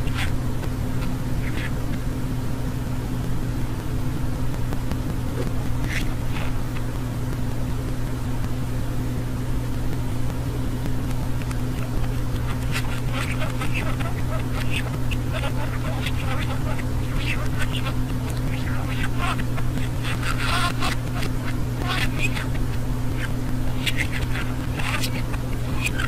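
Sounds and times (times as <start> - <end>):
steady low hum: 0.0 - 26.0
budgerigar chirps: 1.4 - 1.8, 11.8 - 26.0.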